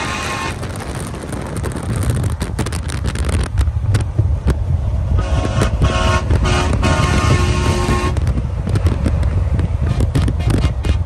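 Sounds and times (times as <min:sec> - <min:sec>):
road and engine rumble: 0:00.0 - 0:11.0
wind buffeting microphone: 0:00.0 - 0:11.0.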